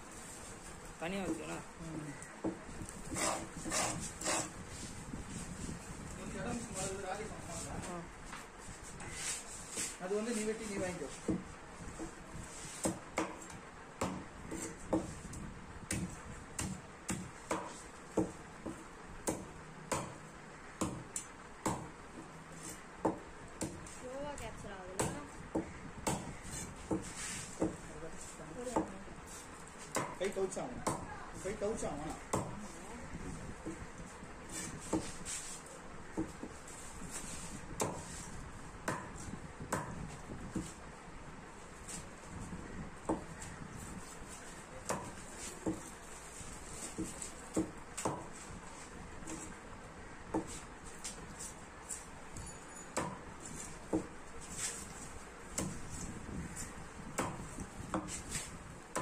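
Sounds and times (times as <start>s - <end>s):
knife chopping on wooden block: 2.4s - 4.5s, 12.8s - 15.1s, 15.9s - 20.2s, 20.8s - 21.9s, 25.0s - 27.8s, 29.9s - 31.1s, 32.3s - 32.6s, 34.5s - 35.2s, 37.8s - 38.1s, 38.8s - 40.8s, 43.0s - 43.4s, 44.8s - 45.9s, 46.9s - 48.4s, 50.3s - 50.6s, 53.0s - 53.2s, 53.9s - 54.1s, 55.6s - 55.8s, 57.2s - 58.3s.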